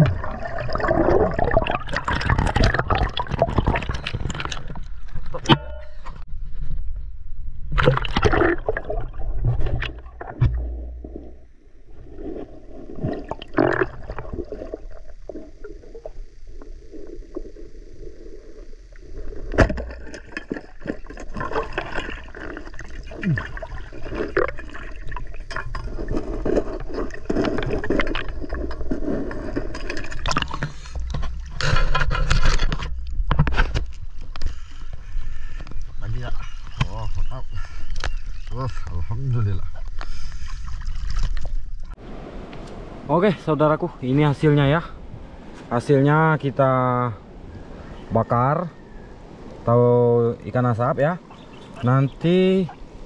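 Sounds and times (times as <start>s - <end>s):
river water sloshing and gurgling: 0.0s - 5.8s, 7.7s - 16.0s, 18.4s - 34.4s, 39.7s - 43.1s
knocks and scrapes in water: 0.0s - 7.0s, 7.6s - 16.1s, 19.0s - 38.9s, 39.6s - 42.0s.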